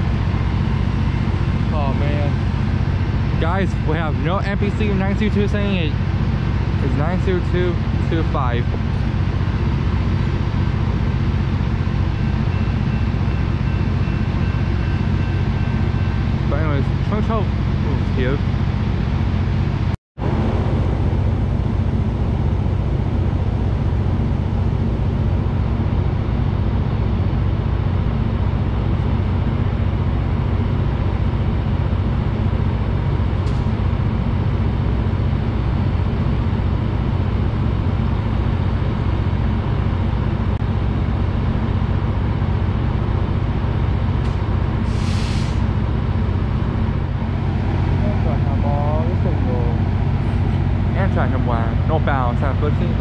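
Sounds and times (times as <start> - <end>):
diesel locomotive engine hum: 0.0 - 53.0
short hiss: 44.9 - 45.6.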